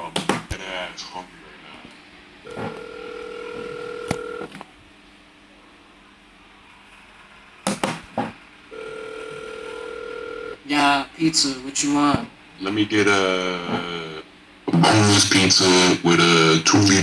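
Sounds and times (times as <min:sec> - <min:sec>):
telephone ringback tone: 0:02.5 - 0:04.5, 0:08.7 - 0:10.6.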